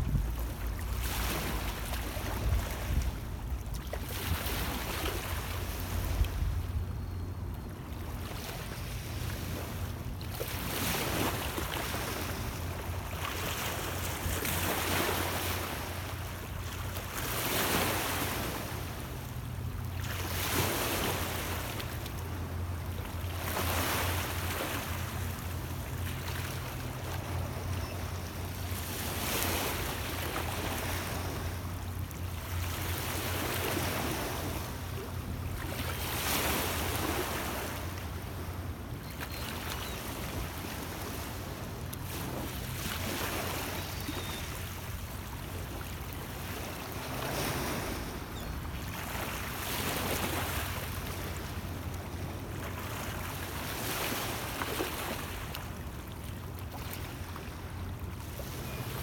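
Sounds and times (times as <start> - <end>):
wind rumble on microphone: 0.0 - 0.6.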